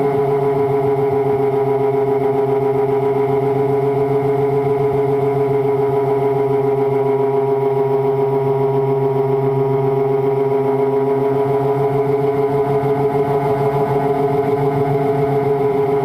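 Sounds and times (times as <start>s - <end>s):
model plane motor and propeller drone: 0.0s - 16.0s.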